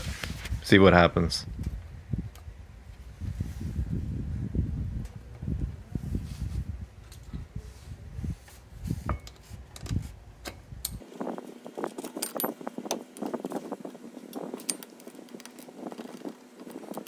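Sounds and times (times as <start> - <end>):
metallic clinking of bolts: 12.0 - 13.0, 14.4 - 16.3.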